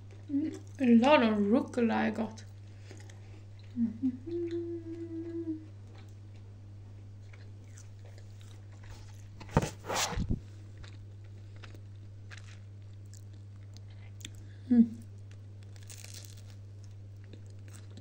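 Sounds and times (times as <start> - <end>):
steady low hum: 0.0 - 18.0
chewing: 2.4 - 6.5, 7.2 - 9.2, 15.3 - 18.0
person humming: 3.7 - 5.7, 14.6 - 15.0
crunching bite of toast: 10.8 - 14.4, 15.3 - 18.0.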